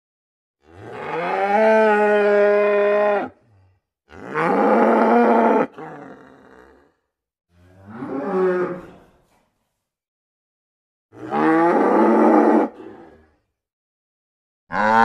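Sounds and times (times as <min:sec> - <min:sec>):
cow mooing: 0:00.6 - 0:03.4, 0:04.1 - 0:06.6, 0:11.2 - 0:12.8, 0:14.7 - 0:15.0.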